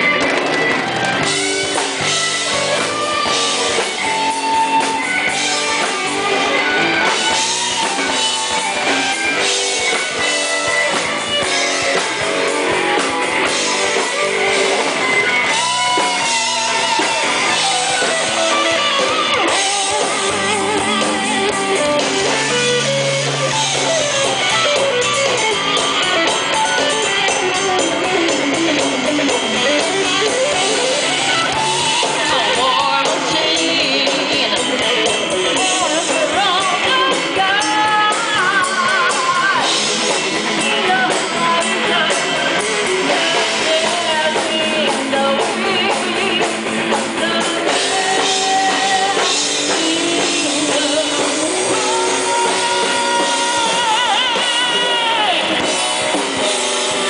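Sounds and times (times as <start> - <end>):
drum kit: 0.0 - 57.0
electric guitar lead lines: 0.0 - 57.0.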